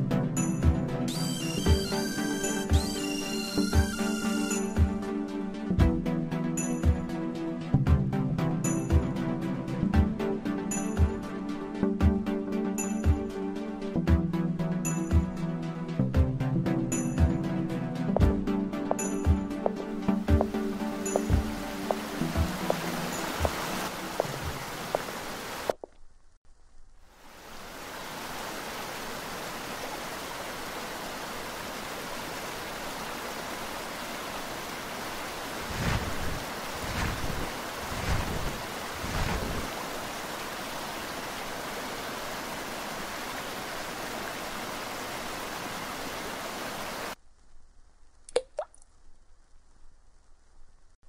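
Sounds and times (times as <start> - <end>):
music: 0.0 - 24.6
fountain water splashing: 20.6 - 25.8, 27.4 - 47.2.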